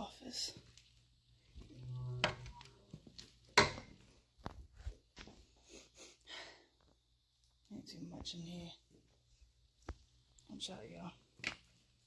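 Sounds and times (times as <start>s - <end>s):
door groaning: 1.8s - 2.6s.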